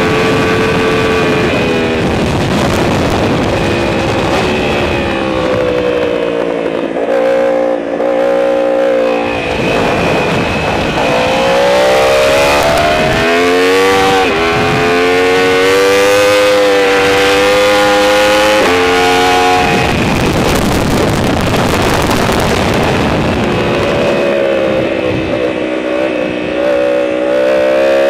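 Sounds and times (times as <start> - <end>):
motorcycle engine at high revs: 0.0 - 28.0
wind rush on microphone: 0.0 - 28.0.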